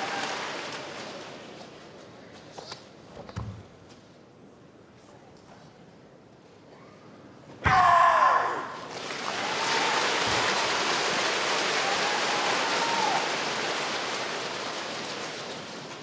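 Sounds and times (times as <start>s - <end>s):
crowd applauding: 0.0s - 1.8s, 8.8s - 16.0s.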